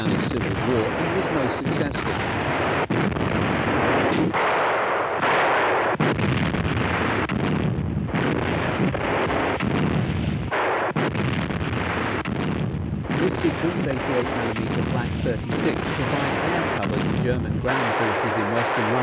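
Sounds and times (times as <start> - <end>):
heavy guns firing: 0.0 - 19.0
rumble of gunfire: 0.0 - 19.0.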